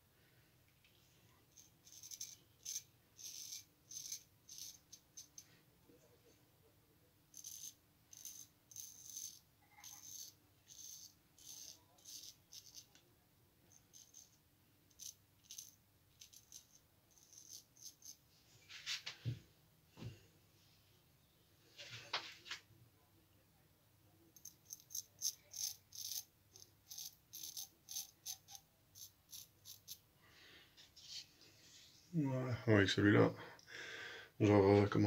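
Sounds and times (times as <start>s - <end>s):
straight razor scraping stubble: 26.9s - 30.0s.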